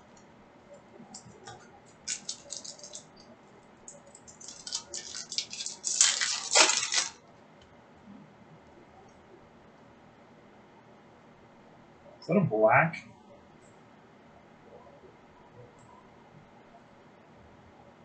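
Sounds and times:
foil wrapper crinkling: 1.5s - 3.3s, 3.9s - 7.2s.

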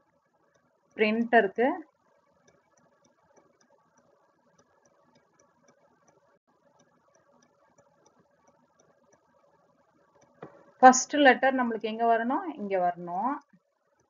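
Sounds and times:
faint ticks: 0.0s - 1.0s, 1.8s - 10.8s, 13.4s - 14.0s.

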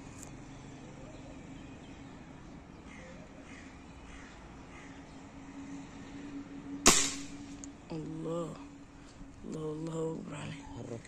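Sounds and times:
steady low hum: 2.3s - 11.0s
crows cawing: 2.8s - 5.2s.

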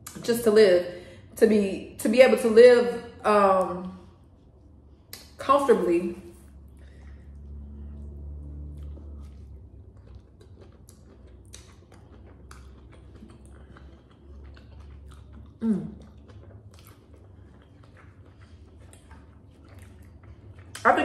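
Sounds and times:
chewing and lip smacks: 3.6s - 5.4s, 6.2s - 21.0s.

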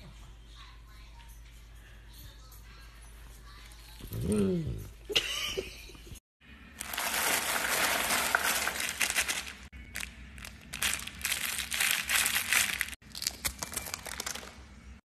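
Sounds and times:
wrapper tearing open: 6.8s - 14.5s
plastic wrappers crinkling: 6.8s - 14.6s.

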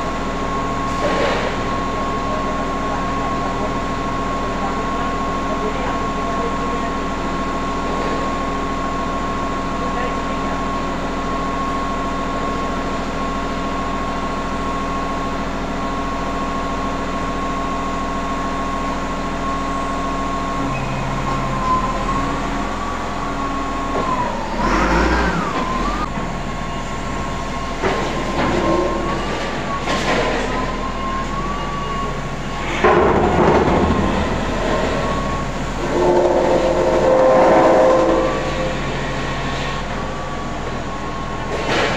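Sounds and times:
industrial machinery humming: 0.0s - 41.9s
loud machine noises: 0.0s - 41.9s
high machine whine: 13.5s - 41.8s.

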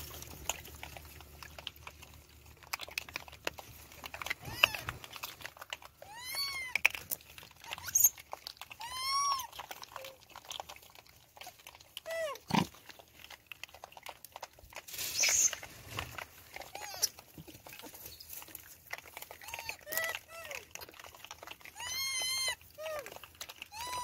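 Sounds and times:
clicks and crunches on stony ground: 0.0s - 24.0s
monkeys calling: 4.4s - 5.0s, 8.8s - 10.1s, 21.8s - 23.1s.

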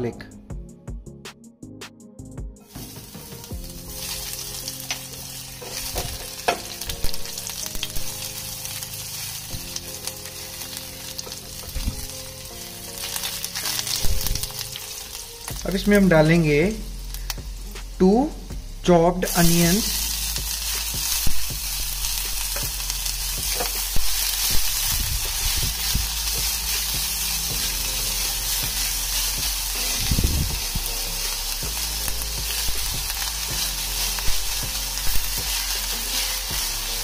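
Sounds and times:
onions sizzling in oil: 2.7s - 18.6s, 19.2s - 37.0s.

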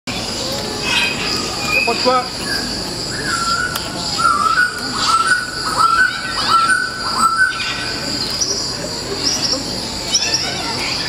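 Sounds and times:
cricket-like chirring: 0.2s - 11.0s
bird-like whistled calls: 0.9s - 8.6s.

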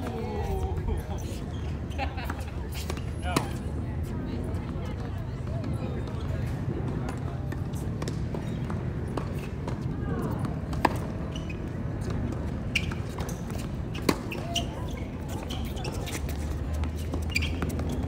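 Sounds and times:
tennis ball bouncing on hard court: 6.9s - 14.7s, 15.4s - 18.0s.

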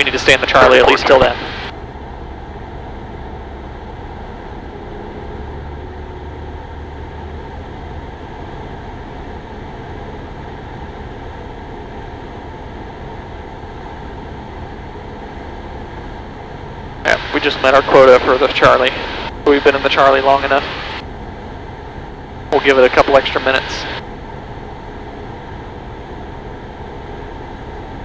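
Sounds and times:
light aircraft engine drone: 0.0s - 28.0s.

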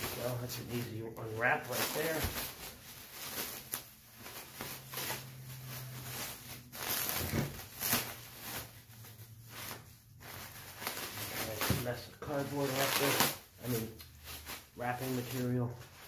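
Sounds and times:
shrink wrap and paper crinkling: 0.0s - 16.0s.

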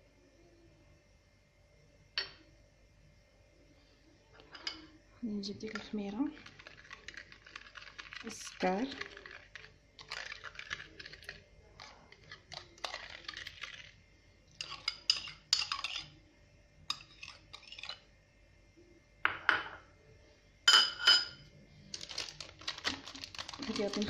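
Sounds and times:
metal spoon scraping bowls: 4.4s - 14.0s, 14.6s - 16.2s, 16.9s - 18.1s.

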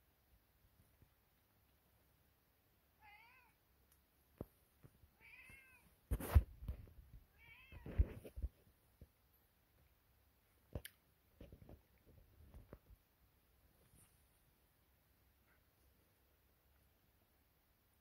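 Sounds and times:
cat meowing: 3.0s - 3.6s, 5.2s - 5.9s, 7.3s - 7.9s.

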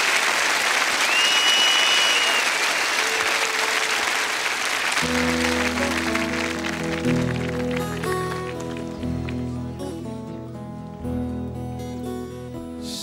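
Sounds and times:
audience applauding: 0.0s - 10.0s
crowd whistle: 1.0s - 3.9s
band playing sustained chords: 5.0s - 13.0s.

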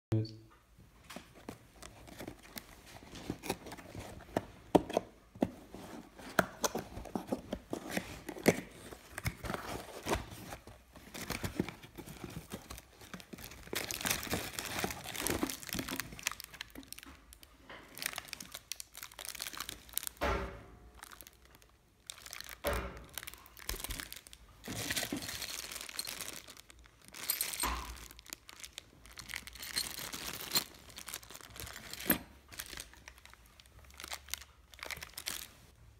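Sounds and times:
cardboard box being opened: 1.4s - 16.5s
plastic bag crinkling: 6.8s - 20.2s, 21.0s - 35.7s.

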